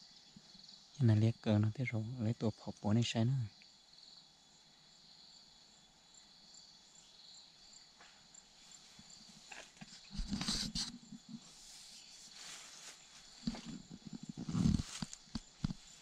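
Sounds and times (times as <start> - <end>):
insects chirring: 0.0 - 16.0
footsteps crunching through dry leaves: 11.5 - 14.0, 14.6 - 16.0.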